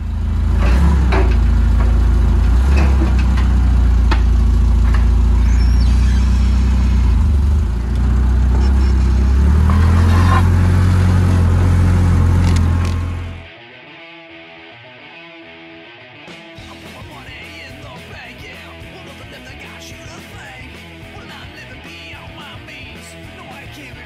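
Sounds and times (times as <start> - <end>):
forklift engine droning: 0.0 - 13.5.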